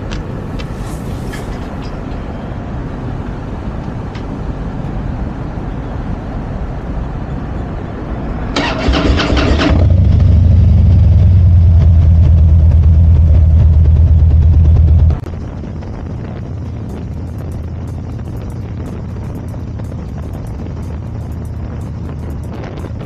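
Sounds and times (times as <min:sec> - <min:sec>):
low background rumble: 0:00.0 - 0:23.0
electric starter cranking: 0:08.6 - 0:10.2
motorcycle engine idling: 0:08.7 - 0:23.0.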